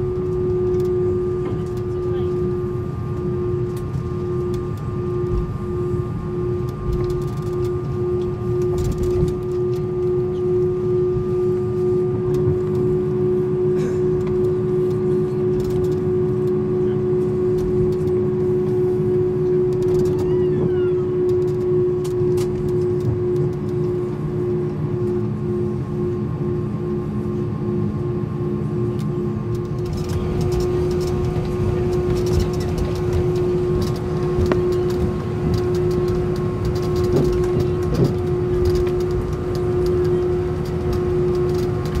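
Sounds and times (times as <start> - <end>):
aircraft rolling rumble: 0.0 - 42.0
falling whine: 0.0 - 42.0
jet engines humming: 0.0 - 42.0
faint rattling clicks: 29.0 - 42.0.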